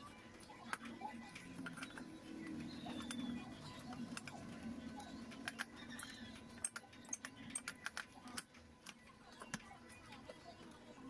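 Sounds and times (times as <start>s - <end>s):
metal parts clicking and tapping: 3.8s - 9.7s.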